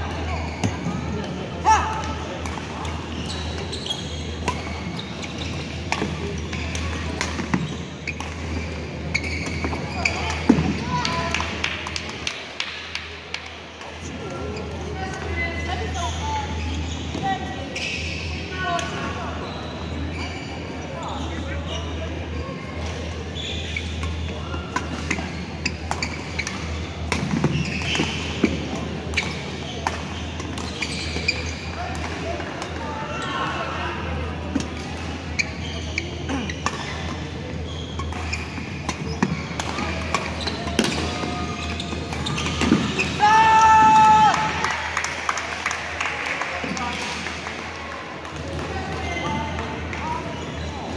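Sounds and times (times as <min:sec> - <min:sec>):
shoes squeaking on floor: 0:02.8 - 0:10.6, 0:15.9 - 0:18.4, 0:19.4 - 0:21.8, 0:23.3 - 0:31.9, 0:35.2 - 0:43.2, 0:50.0 - 0:50.9.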